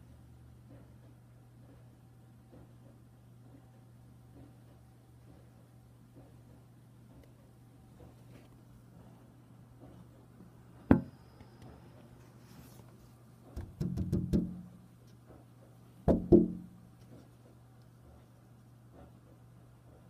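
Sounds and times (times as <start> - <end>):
low steady hum: 0.0 - 20.0
sharp knocks: 10.9 - 11.2, 13.5 - 14.9, 16.1 - 16.8.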